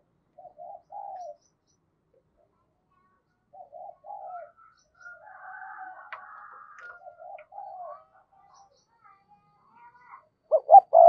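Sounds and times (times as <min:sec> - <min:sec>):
dove cooing: 0:00.4 - 0:01.4, 0:03.5 - 0:08.2, 0:10.5 - 0:11.0
faint small bird chirps: 0:00.4 - 0:11.0.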